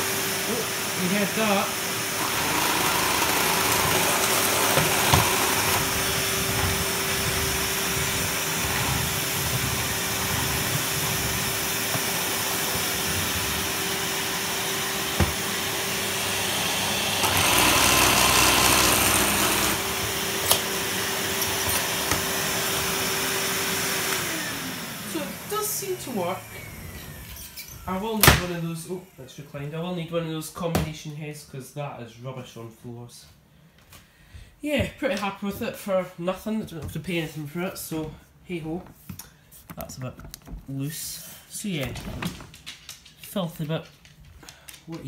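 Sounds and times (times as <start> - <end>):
vacuum cleaner running: 0.0 - 27.9.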